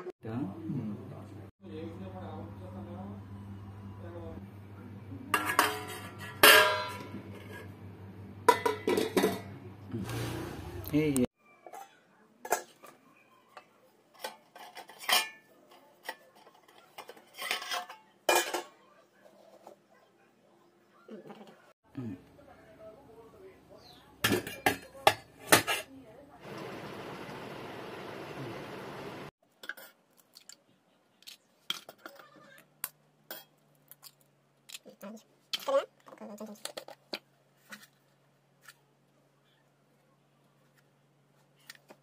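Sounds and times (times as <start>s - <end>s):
plates scraping against pan: 5.4s - 7.7s.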